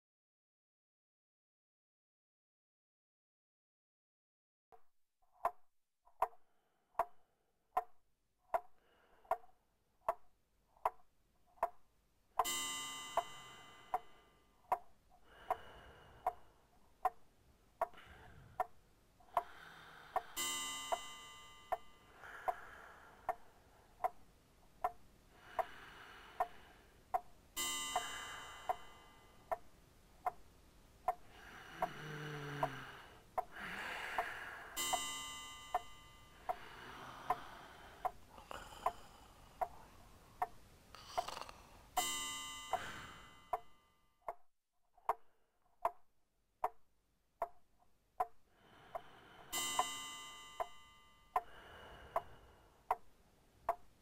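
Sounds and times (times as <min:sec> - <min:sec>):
steady ticking: 0:07.8 - 0:44.4, 0:47.4 - 0:54.0
hissing with ringing tones: 0:27.6 - 0:29.4, 0:41.2 - 0:43.4.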